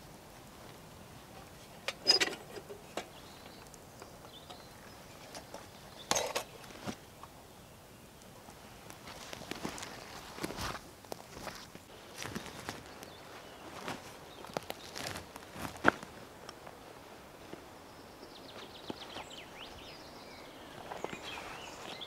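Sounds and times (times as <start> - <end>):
metal lanterns clinking: 5.3 - 6.7
faint rustling: 8.4 - 22.0.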